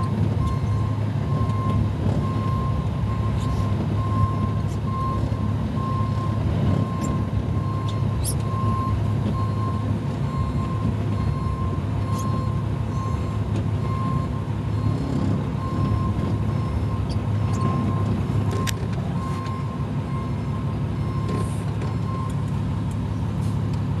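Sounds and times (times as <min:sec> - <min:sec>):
diesel engine running low: 0:00.0 - 0:24.0
backup alarm beeping: 0:05.8 - 0:21.5.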